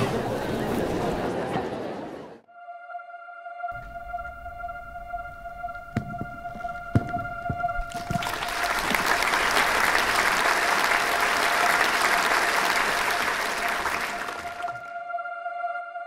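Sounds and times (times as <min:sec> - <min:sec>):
audience applauding: 0:06.7 - 0:14.9.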